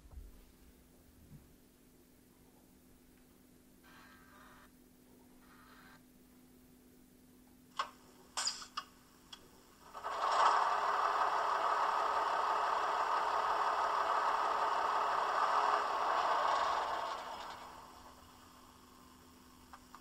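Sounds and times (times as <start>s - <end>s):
diesel engine sound from small speaker: 10.0s - 18.4s.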